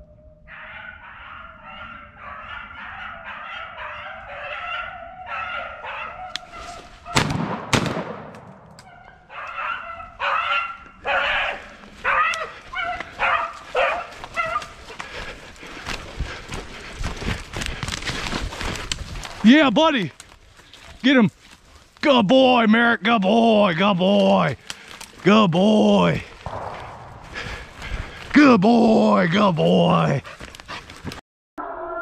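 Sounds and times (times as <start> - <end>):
dogs baying: 0.5 - 7.2, 8.8 - 17.4
footsteps through dry leaves: 6.5 - 7.1, 11.5 - 19.5, 20.1 - 22.0
sharp loud bangs: 7.2 - 8.7, 26.4 - 28.3.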